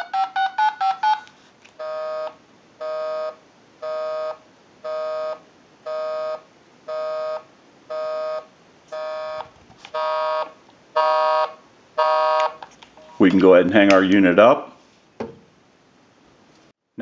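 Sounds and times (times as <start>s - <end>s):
touch-tone beeps: 0.0s - 3.3s
telephone busy signal: 1.8s - 8.4s, 9.0s - 12.5s.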